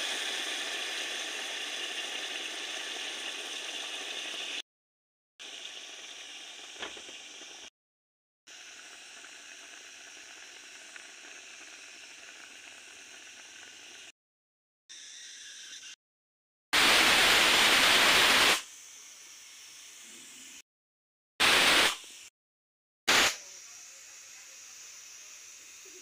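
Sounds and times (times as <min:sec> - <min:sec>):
pressure cooker steam hissing: 0:00.0 - 0:04.6, 0:05.4 - 0:07.7, 0:08.5 - 0:14.1, 0:16.8 - 0:20.6, 0:21.4 - 0:22.3, 0:23.1 - 0:26.0
faint hiss of simmering pot: 0:08.5 - 0:14.1.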